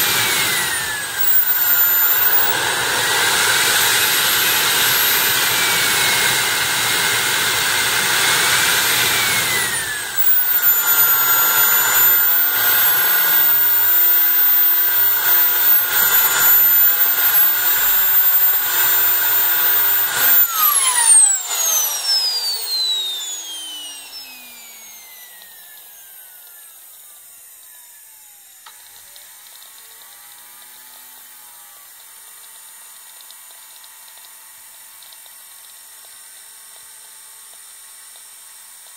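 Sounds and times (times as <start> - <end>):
jet turbine engine whine: 0.0 - 28.8
small click: 1.2 - 2.6, 32.0 - 34.4, 35.0 - 36.9.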